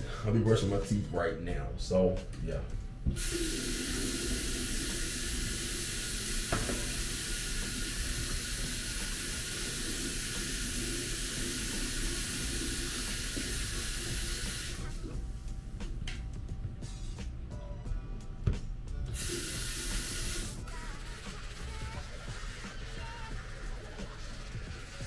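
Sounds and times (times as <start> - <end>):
faucet running into sink: 3.1 - 15.2, 19.1 - 25.0.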